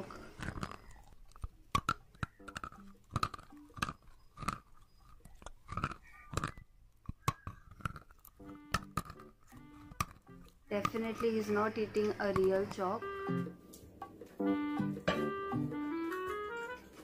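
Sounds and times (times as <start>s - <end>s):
chalk sticks crunching when chewed: 0.0s - 12.9s.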